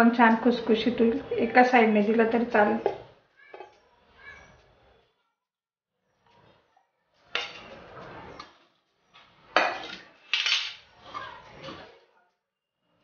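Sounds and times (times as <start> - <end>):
metal dishes clattering: 7.3 - 7.9, 9.5 - 10.9.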